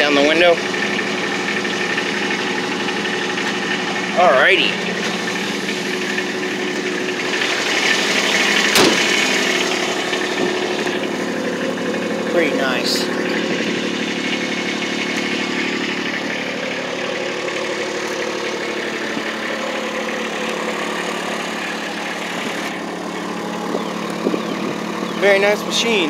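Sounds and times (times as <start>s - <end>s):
diesel engine idling: 0.0s - 26.0s.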